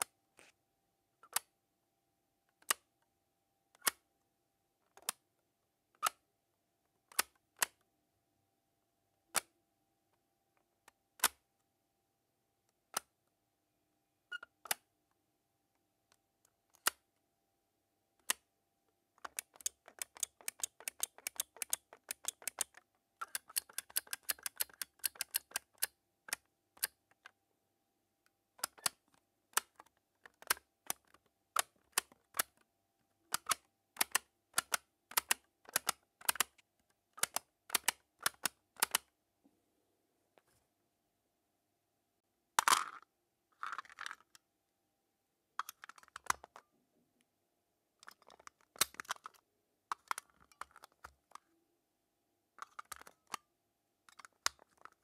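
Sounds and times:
plastic rocker switch clicking: 33.3s - 36.5s, 37.2s - 39.1s.

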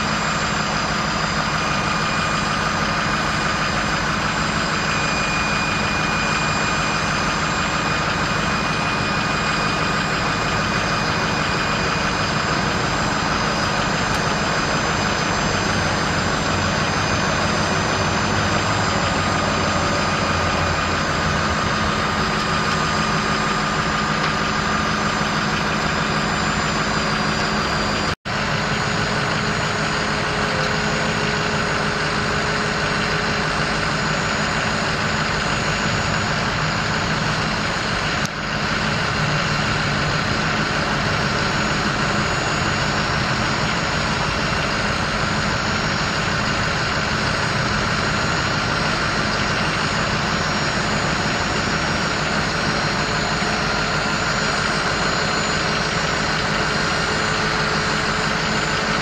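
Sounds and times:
diesel truck engine idling: 0.0s - 59.0s.

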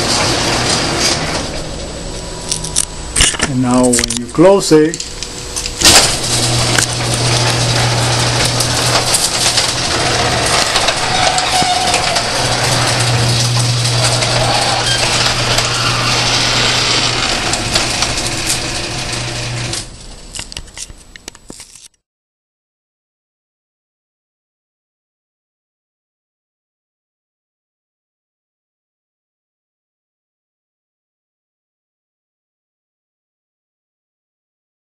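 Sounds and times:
garage door rattling along track: 0.0s - 2.2s, 5.0s - 20.3s
garage door opener motor humming: 0.0s - 20.5s.

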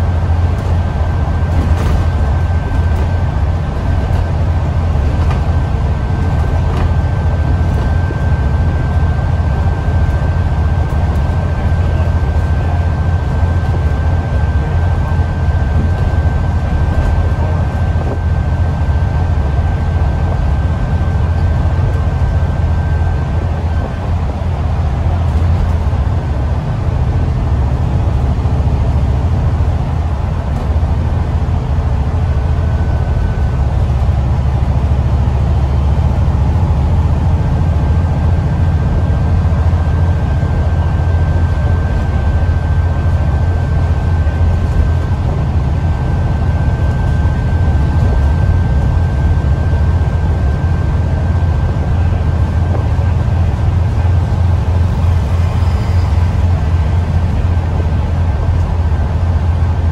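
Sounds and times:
bus engine and road drone: 0.0s - 59.9s
thin high whine: 29.9s - 59.8s.

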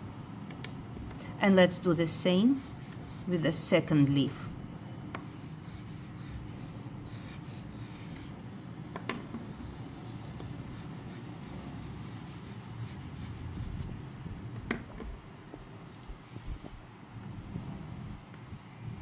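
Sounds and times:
pastel rubbing on paper: 2.4s - 3.6s, 5.2s - 8.4s, 10.5s - 14.0s.

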